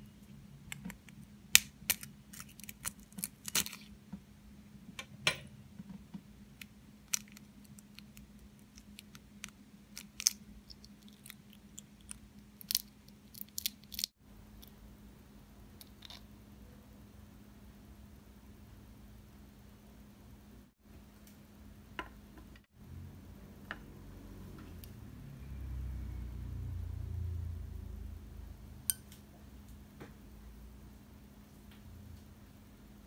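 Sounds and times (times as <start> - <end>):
faint steady hum: 0.0 - 33.0
eggshell crackling: 0.6 - 4.0, 6.6 - 14.8.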